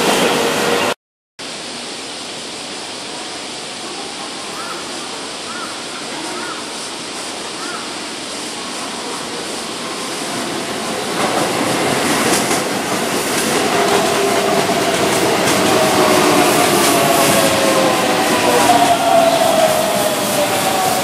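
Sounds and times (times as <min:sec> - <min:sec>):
train wheels rumbling on rails: 0:06.2 - 0:21.0.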